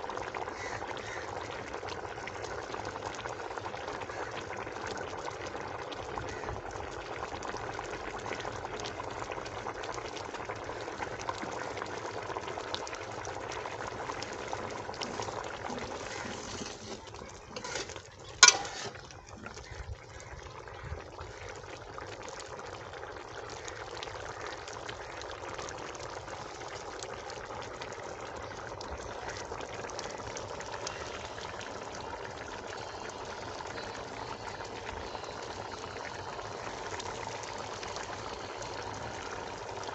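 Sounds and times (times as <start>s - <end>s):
gravy bubbling in a pot: 0.0s - 39.9s
ladle knocking pot: 15.1s - 19.1s.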